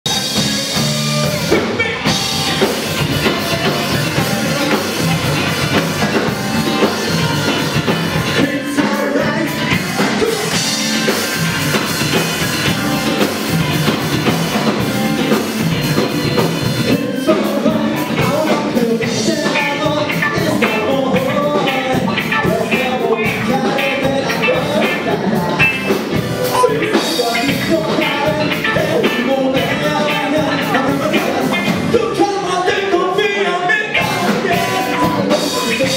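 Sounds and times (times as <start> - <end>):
drum kit: 0.0 - 33.3, 34.0 - 35.9
electric guitars: 0.1 - 35.9
person singing: 8.2 - 10.9, 16.9 - 25.9, 26.5 - 35.9.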